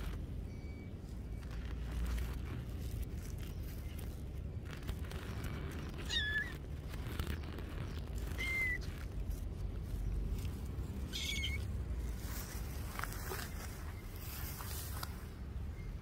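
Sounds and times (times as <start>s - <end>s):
steady low rumble: 0.0s - 16.0s
kittens mewing: 5.8s - 7.3s, 11.0s - 11.7s.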